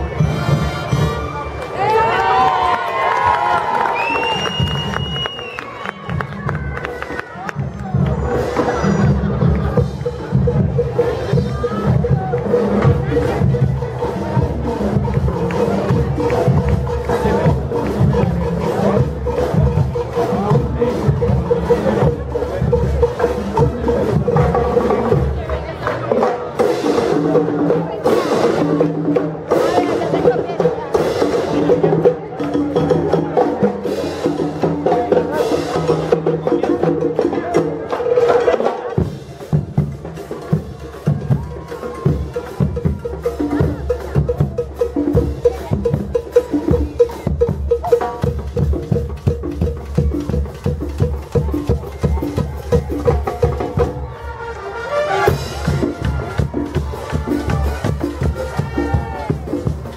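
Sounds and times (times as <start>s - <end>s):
marching drums beat: 6.1s - 32.2s, 38.4s - 54.2s, 55.3s - 59.9s
brass playing: 54.0s - 59.4s.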